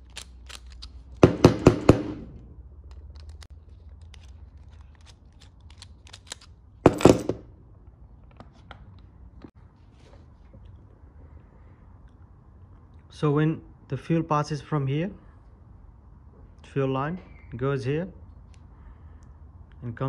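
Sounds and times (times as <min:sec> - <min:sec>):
metal parts clicking and clattering: 0:00.0 - 0:01.2, 0:02.8 - 0:07.5.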